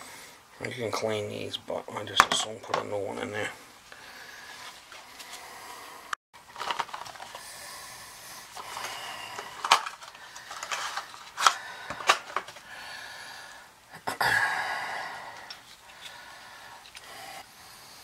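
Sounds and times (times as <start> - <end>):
rustling scrape: 6.5 - 7.4, 8.5 - 12.6
metal parts clicking and knocking: 9.4 - 12.6.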